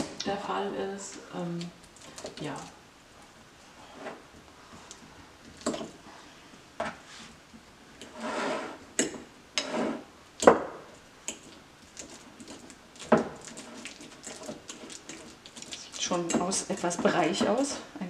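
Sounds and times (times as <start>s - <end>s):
soft squishing of bananas: 11.2s - 17.8s.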